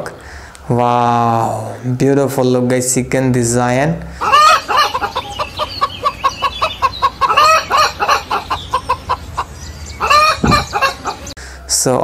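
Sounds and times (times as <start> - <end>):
hens clucking: 4.1 - 11.4.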